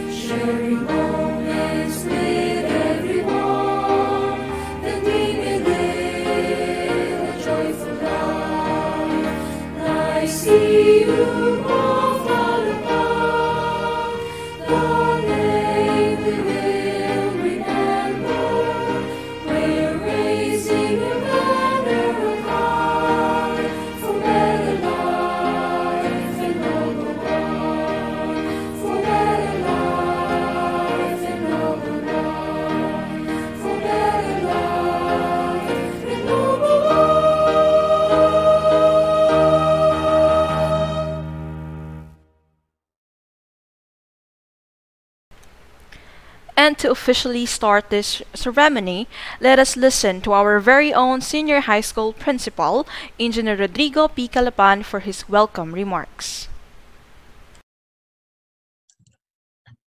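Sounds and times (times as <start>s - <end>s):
choir singing: 0.0s - 41.8s.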